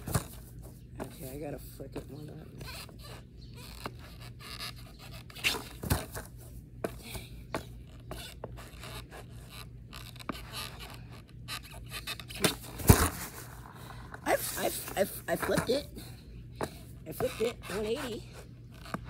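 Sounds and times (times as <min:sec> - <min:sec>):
skateboard landing thud on grass: 0:00.0 - 0:00.5, 0:05.4 - 0:06.3, 0:12.4 - 0:13.6
shoes scuffing skateboard: 0:03.8 - 0:16.0, 0:16.6 - 0:19.0.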